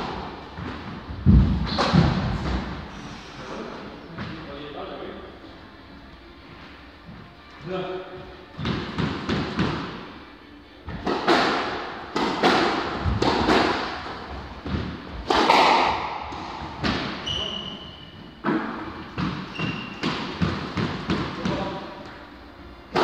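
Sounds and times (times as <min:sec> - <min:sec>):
squash ball hits echoing: 0:00.0 - 0:02.9, 0:08.6 - 0:10.2, 0:10.9 - 0:22.0
sneakers squeaking: 0:16.7 - 0:21.6.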